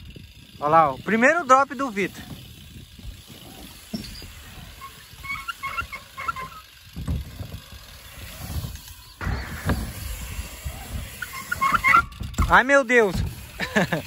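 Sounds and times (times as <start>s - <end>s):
tyres rolling on wooden boards: 1.8s - 14.0s
dull thumps on ramp: 7.0s - 7.5s.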